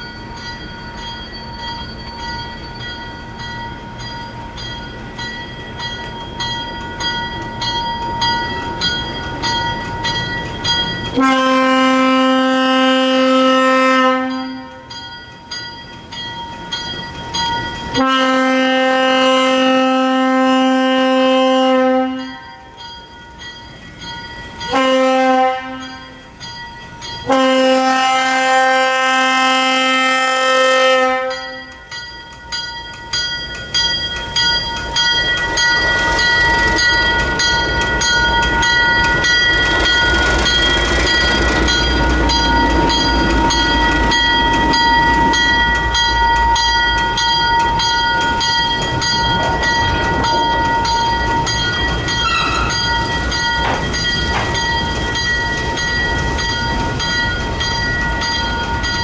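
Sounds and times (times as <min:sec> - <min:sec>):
diesel locomotive engine: 0:00.0 - 0:59.0
locomotive bell ringing: 0:00.0 - 0:59.0
locomotive air horn: 0:11.2 - 0:14.8, 0:18.0 - 0:22.4, 0:24.7 - 0:26.2, 0:27.2 - 0:31.7, 0:52.2 - 0:52.8.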